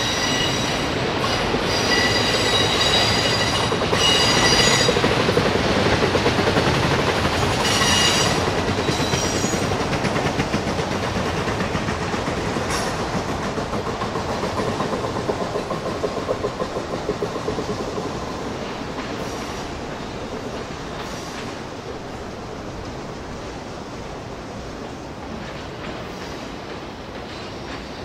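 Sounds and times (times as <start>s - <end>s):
wheels squealing: 0.0s - 5.1s, 7.4s - 9.7s
train wheels rumbling on rail: 0.0s - 28.0s
wheels clicking over rail joints: 0.9s - 23.0s.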